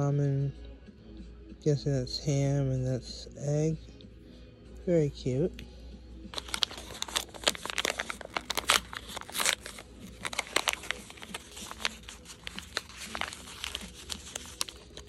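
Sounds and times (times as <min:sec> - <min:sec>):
wrapper crinkling: 0:06.4 - 0:15.0.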